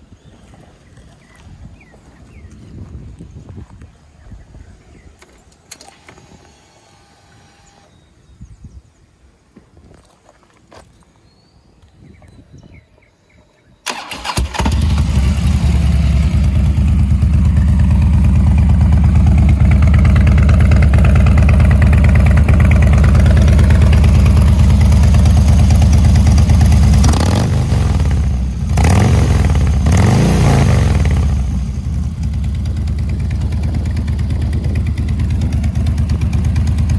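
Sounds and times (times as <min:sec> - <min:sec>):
motorcycle engine starting: 0:13.8 - 0:36.9
motorcycle engine idling and revving: 0:13.9 - 0:36.9.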